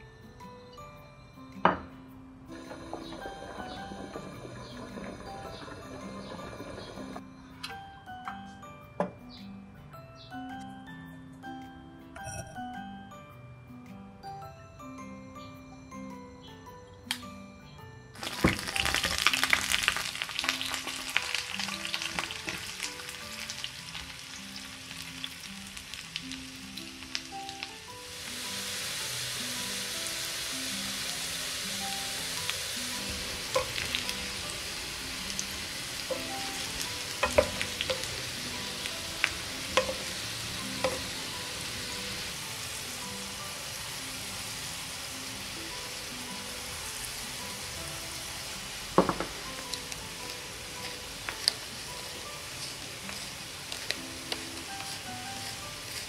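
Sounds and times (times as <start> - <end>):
potatoes frying in oil: 2.6 - 7.2, 18.2 - 56.0
sharp pops in frying oil: 18.2 - 22.7, 33.5 - 34.2, 37.2 - 38.1, 39.8 - 40.1.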